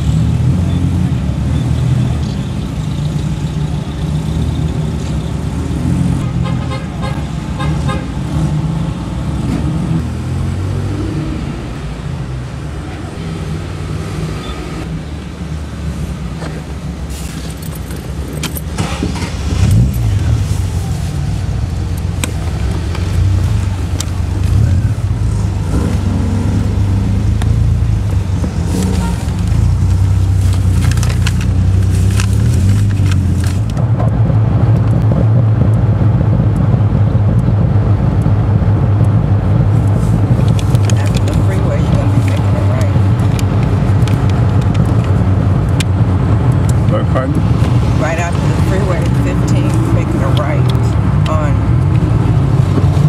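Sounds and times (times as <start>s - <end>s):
car cruising at road speed: 0.0s - 53.0s
car engines running at low speed: 0.0s - 53.0s
engine revving: 7.4s - 12.0s, 18.5s - 53.0s.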